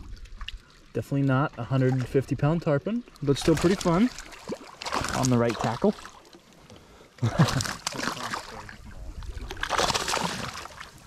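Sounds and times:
water splashing against boat: 0.0s - 11.0s.

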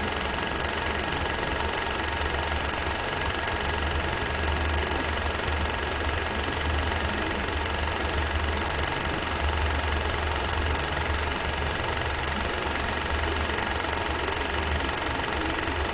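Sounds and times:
film projector whirring: 0.0s - 15.9s.

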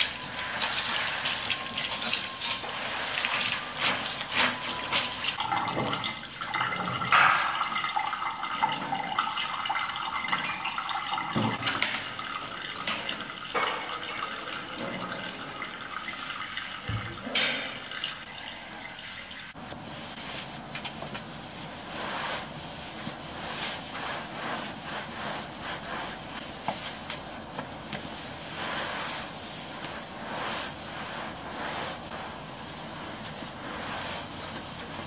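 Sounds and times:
wet mop swishing on floor: 0.0s - 16.1s, 19.5s - 35.0s
water splashing in sink: 0.0s - 19.7s.

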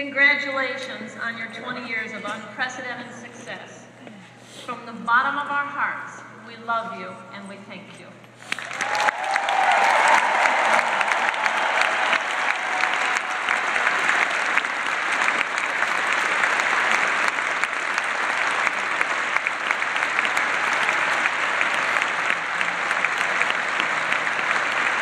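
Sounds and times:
audience applauding: 8.5s - 25.0s.

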